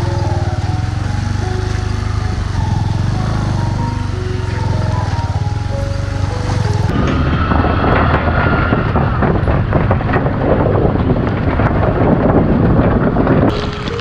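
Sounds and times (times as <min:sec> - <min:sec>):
motorcycle riding: 0:00.0 - 0:14.0
wind buffeting microphone: 0:00.0 - 0:14.0
wooden bridge planks clattering: 0:00.0 - 0:14.0.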